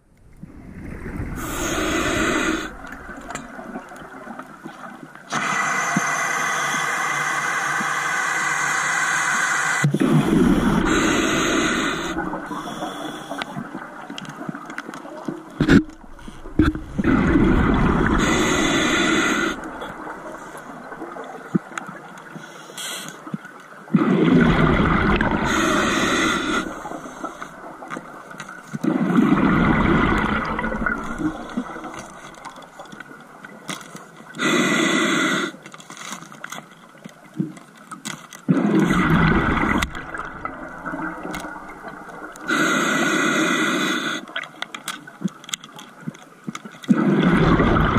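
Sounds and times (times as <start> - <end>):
regulator hiss: 5.3 - 13.6, 18.1 - 20.6, 25.4 - 27.8
diver exhaling bubbles: 15.6 - 21.3, 24.0 - 28.2, 28.8 - 32.5, 38.5 - 42.6, 46.9 - 47.9.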